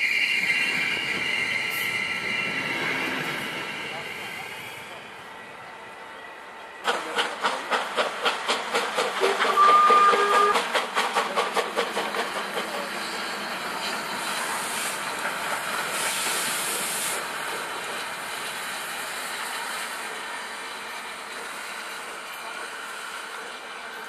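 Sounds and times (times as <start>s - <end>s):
steam hissing: 6.8s - 24.0s
steam locomotive chuffing: 6.8s - 24.0s
steam whistle blast: 9.4s - 10.6s.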